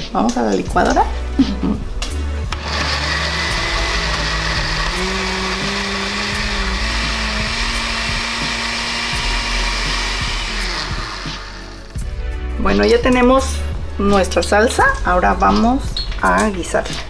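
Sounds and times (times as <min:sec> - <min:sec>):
blender motor running: 0:02.5 - 0:11.9.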